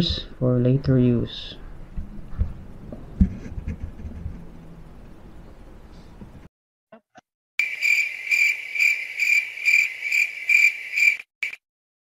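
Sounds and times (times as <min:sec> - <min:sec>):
cricket chirps: 0:07.6 - 0:11.6.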